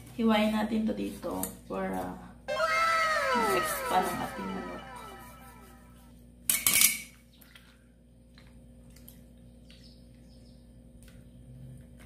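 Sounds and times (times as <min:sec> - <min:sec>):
faint clicks of handling chicken: 0:07.3 - 0:12.0.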